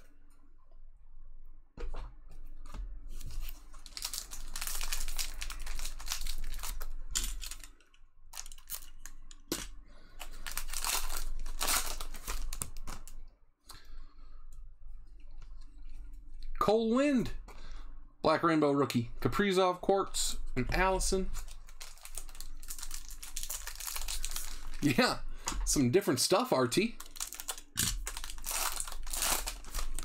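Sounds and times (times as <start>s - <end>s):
foil wrapper tearing and crinkling: 3.4s - 9.2s, 10.3s - 13.1s, 21.4s - 25.0s, 27.0s - 30.0s.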